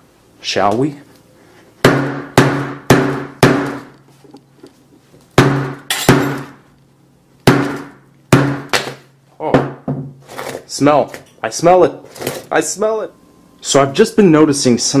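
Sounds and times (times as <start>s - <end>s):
hammer striking metal phone: 5.4s - 6.6s.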